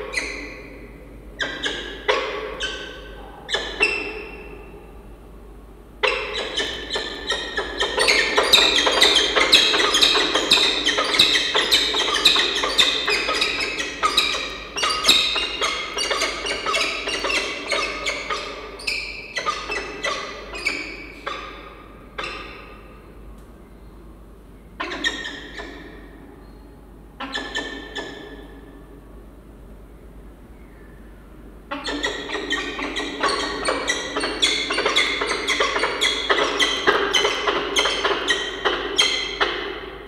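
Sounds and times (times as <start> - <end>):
falcons calling: 6.0 - 23.2, 31.7 - 40.0.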